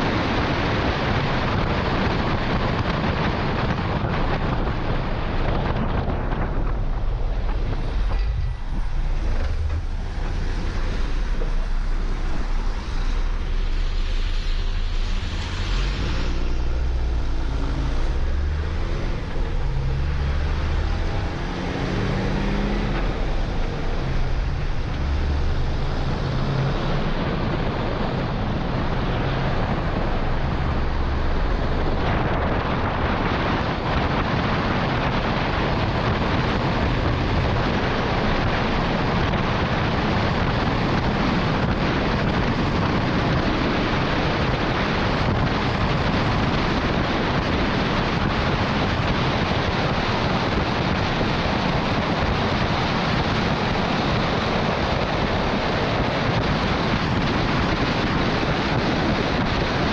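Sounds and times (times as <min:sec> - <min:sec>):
tyres hissing on wet road: 0:00.0 - 0:59.9
wind buffeting microphone: 0:00.0 - 0:59.9
truck diesel engine running: 0:02.8 - 0:52.6.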